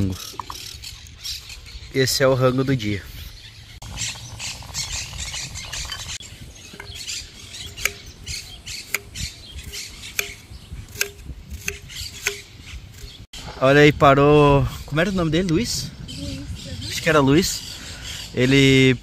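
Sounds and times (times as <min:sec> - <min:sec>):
birds chirping and squawking: 0:00.0 - 0:19.0
sharp clicks or knocks: 0:06.7 - 0:07.1, 0:07.7 - 0:13.2.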